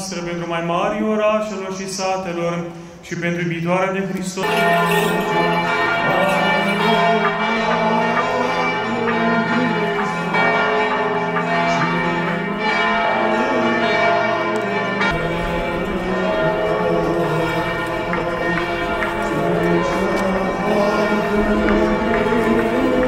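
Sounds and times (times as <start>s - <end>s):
church bells ringing: 4.4s - 23.0s.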